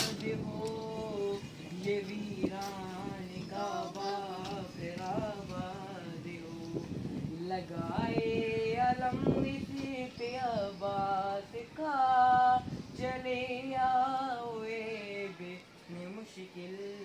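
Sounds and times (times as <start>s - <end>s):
person singing a lament: 0.0s - 6.9s.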